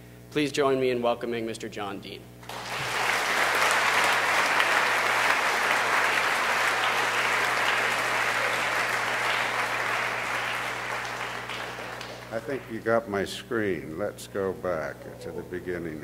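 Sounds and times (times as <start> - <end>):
audience applauding: 2.4 - 12.8.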